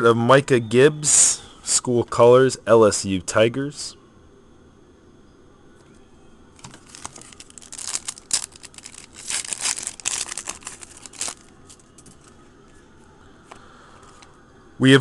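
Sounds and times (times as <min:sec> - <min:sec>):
foil wrapper tearing and crinkling: 0:06.6 - 0:12.3
faint rustles of cards: 0:06.6 - 0:14.4.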